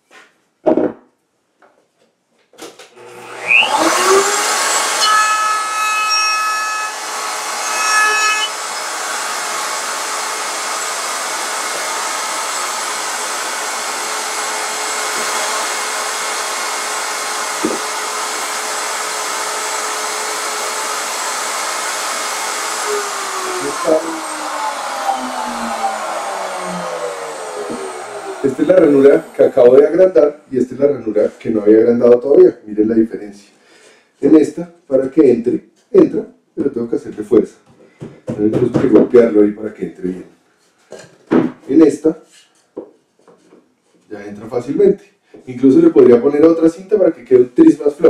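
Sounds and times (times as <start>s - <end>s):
router whining and cutting wood: 2.9s - 31.7s.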